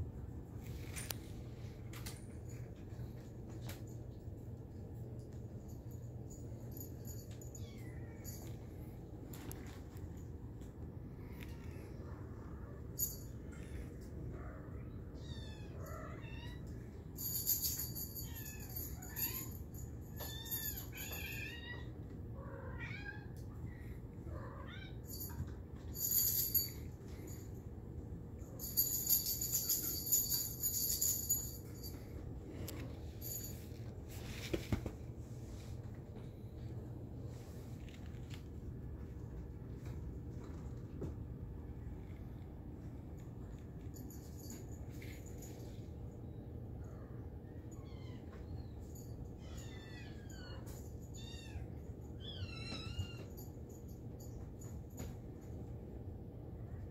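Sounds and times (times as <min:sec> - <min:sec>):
small bell jingling: 0:05.2 - 0:09.8, 0:13.0 - 0:13.6, 0:15.2 - 0:21.8, 0:24.8 - 0:27.6, 0:28.4 - 0:33.9, 0:43.5 - 0:45.9.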